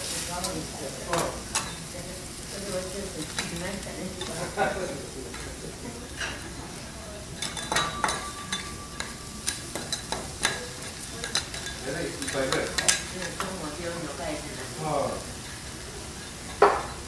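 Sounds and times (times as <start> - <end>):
food sizzling on griddle: 0.0 - 17.0
metal spatulas scraping and clicking: 7.4 - 13.6.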